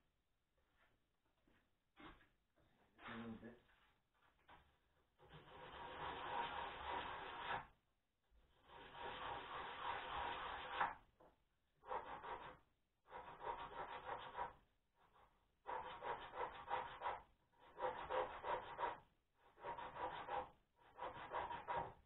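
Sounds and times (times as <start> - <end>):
rasping strokes on wood: 5.3 - 7.7, 8.6 - 11.0, 11.8 - 14.6, 15.6 - 22.0.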